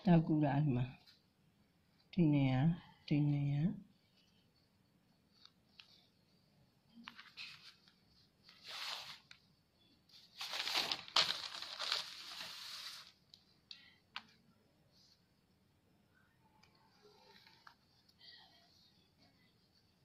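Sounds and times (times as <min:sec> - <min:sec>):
fabric rustling: 0:06.9 - 0:09.4, 0:10.0 - 0:13.3.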